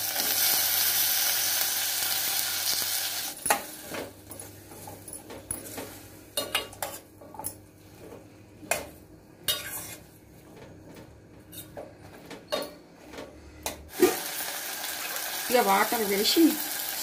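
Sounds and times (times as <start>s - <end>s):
ladle scraping steel pot: 9.5s - 10.1s.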